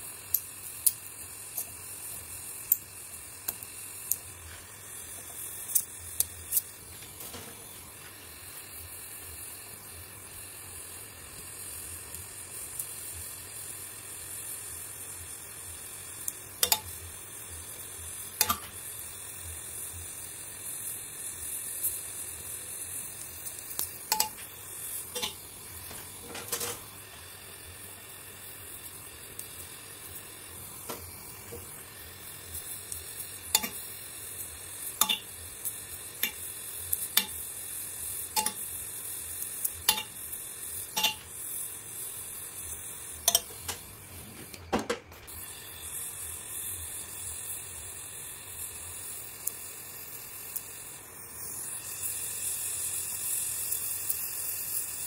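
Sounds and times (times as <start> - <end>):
gas torch flame hissing: 0.0 - 55.0.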